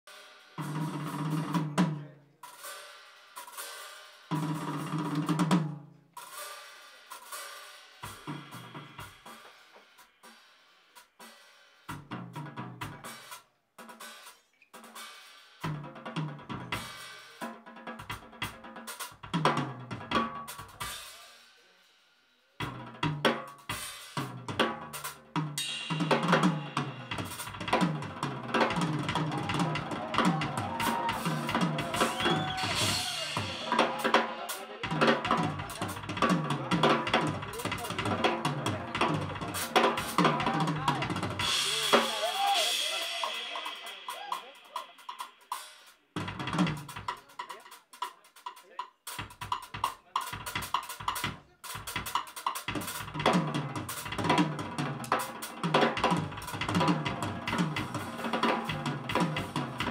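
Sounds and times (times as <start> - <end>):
drum kit playing: 0.0 - 21.5, 22.6 - 59.9
cymbal crashes: 25.6 - 27.6.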